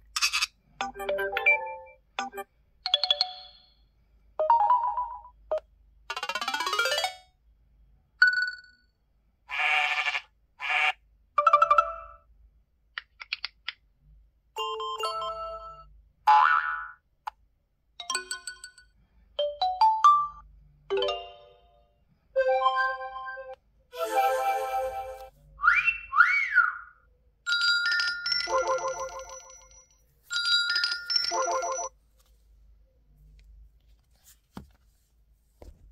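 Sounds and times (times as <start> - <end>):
electronic chord: 24.0 - 25.3
short chiming melody: 24.0 - 25.3.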